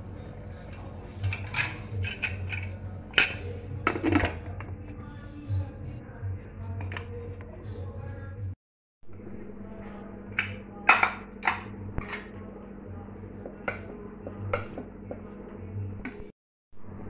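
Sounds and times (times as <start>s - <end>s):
steady low hum: 0.0s - 16.0s
ladle clinking and scraping in pot: 0.6s - 4.7s.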